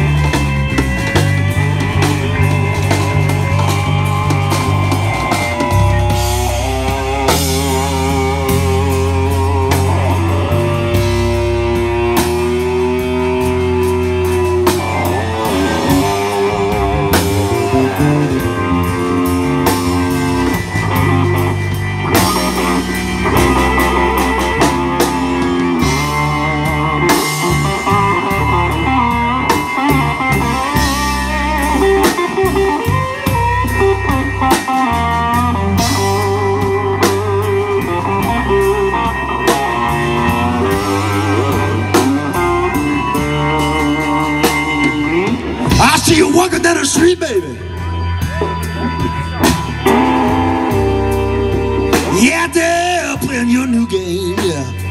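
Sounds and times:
drum kit: 0.0 - 54.9
electric guitar solo: 0.0 - 54.9.

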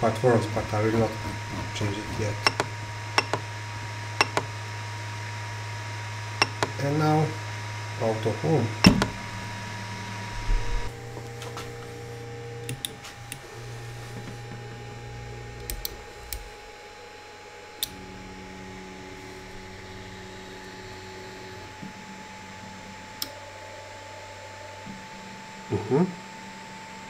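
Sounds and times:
stepper motors whining: 0.0 - 27.0
sharp clicks: 2.4 - 3.5, 4.2 - 4.5, 6.4 - 6.8.

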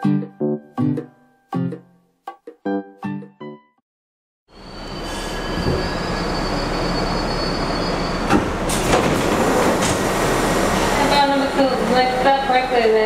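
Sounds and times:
thin high whine: 4.5 - 8.3
subway train noise: 4.5 - 13.0.

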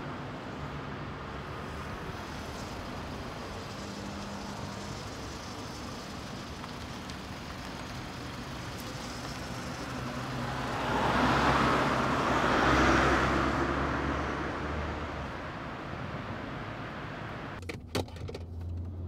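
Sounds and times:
passing vehicle road noise: 0.0 - 17.6
car engine idling: 1.5 - 12.6.

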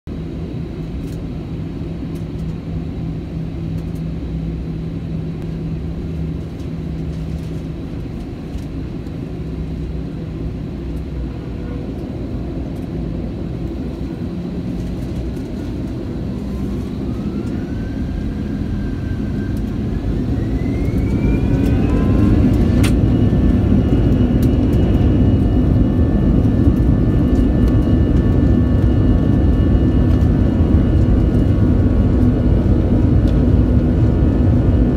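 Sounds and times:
jet engines humming and whining: 0.1 - 34.9.

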